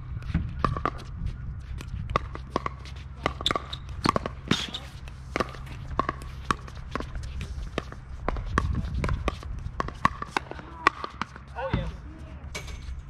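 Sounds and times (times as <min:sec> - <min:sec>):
paddles hitting plastic ball: 0:01.8 - 0:11.5.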